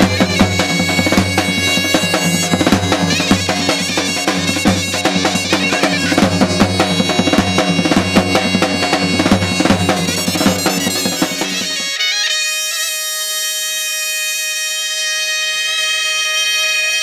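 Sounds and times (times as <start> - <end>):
steady drum beat: 0.0 - 11.9
shrill reed pipes playing melody: 0.0 - 17.0.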